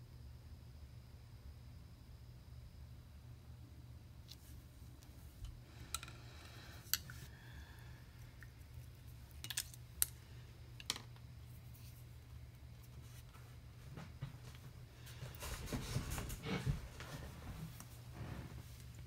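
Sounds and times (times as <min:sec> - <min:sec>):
low steady hum: 0:00.0 - 0:19.0
rustling and handling noise: 0:04.2 - 0:07.4, 0:08.1 - 0:19.0.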